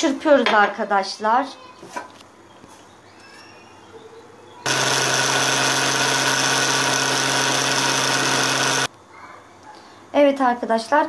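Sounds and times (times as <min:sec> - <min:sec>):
food processor motor whirring: 0:04.7 - 0:08.9.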